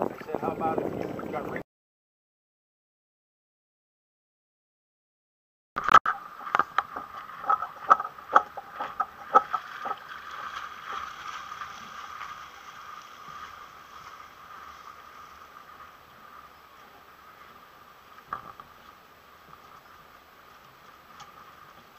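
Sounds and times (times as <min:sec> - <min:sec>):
water sloshing against a hull: 0:00.0 - 0:01.6, 0:05.8 - 0:21.9.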